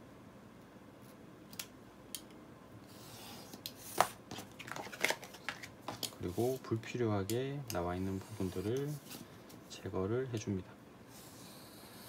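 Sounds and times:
paper rustling: 0:03.9 - 0:06.6.

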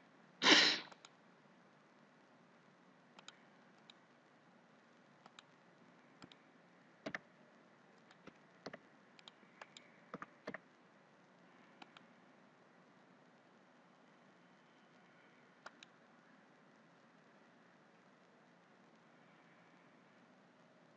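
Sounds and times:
mouse and keyboard clicks: 0:03.2 - 0:04.0, 0:05.2 - 0:05.5, 0:06.2 - 0:06.4, 0:07.0 - 0:07.2, 0:08.0 - 0:10.6, 0:11.8 - 0:12.1, 0:15.6 - 0:16.0.

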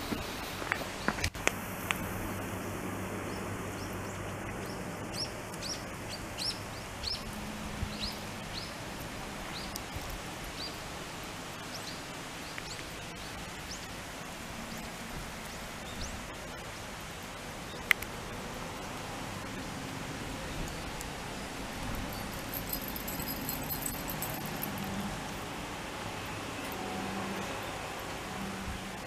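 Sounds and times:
steady outdoor hiss: 0:00.0 - 0:29.0.

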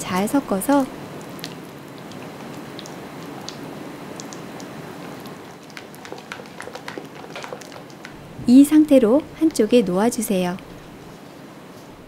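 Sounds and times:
spatula stirring batter in bowl: 0:05.6 - 0:08.2.

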